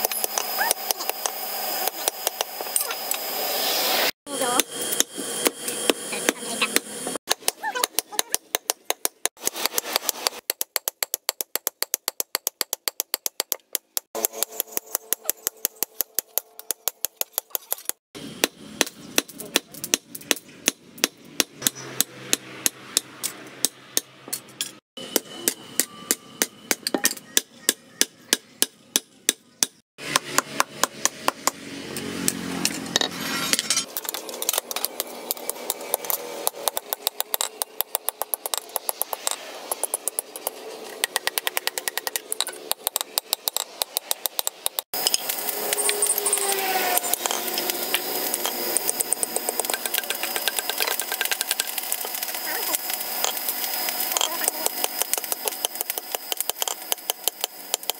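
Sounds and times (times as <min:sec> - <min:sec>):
hammer striking hot steel on anvil: 0:18.4 - 0:31.6, 0:54.1 - 0:57.9.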